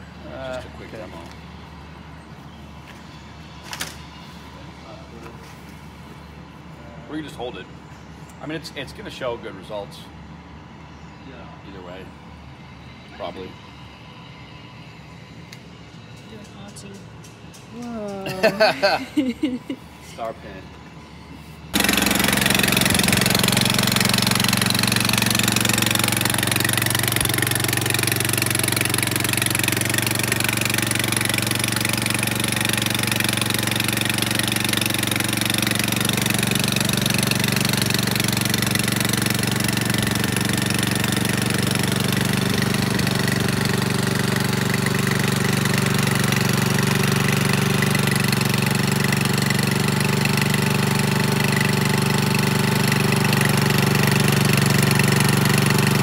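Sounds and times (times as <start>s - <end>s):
small engine idling: 21.7s - 56.0s.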